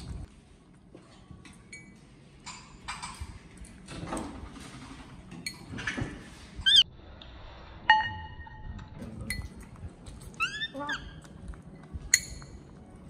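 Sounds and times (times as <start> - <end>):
baby monkey squealing: 10.4 - 11.3.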